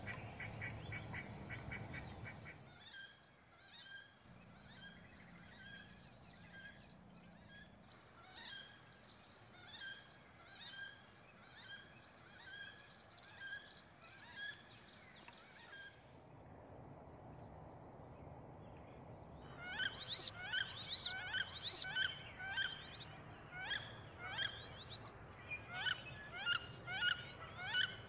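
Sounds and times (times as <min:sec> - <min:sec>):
wood duck calling: 0:19.7 - 0:23.0.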